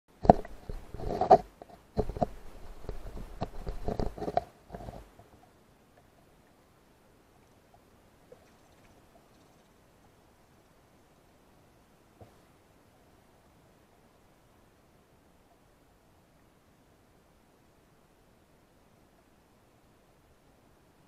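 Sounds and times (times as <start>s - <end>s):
small ticks: 0.2s - 6.6s, 7.4s - 9.9s.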